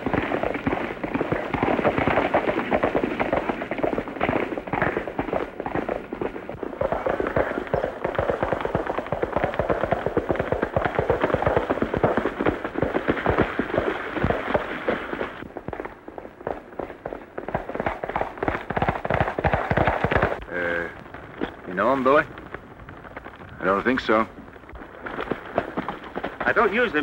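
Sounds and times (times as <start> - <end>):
horses galloping on dirt: 0.0 - 27.0.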